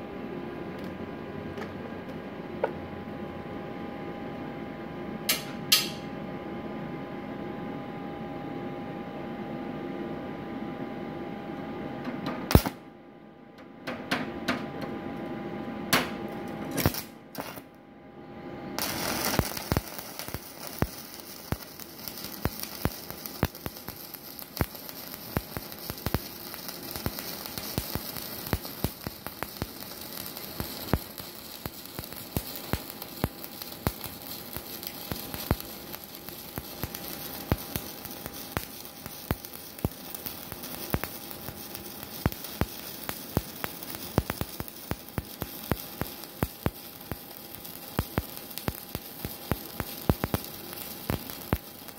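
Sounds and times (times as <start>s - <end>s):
welding arc crackling: 12.5s - 12.8s, 16.7s - 17.7s, 18.8s - 51.9s
welder hum: 16.3s - 17.7s, 18.5s - 51.9s
electrode tapping on metal: 18.8s - 51.9s.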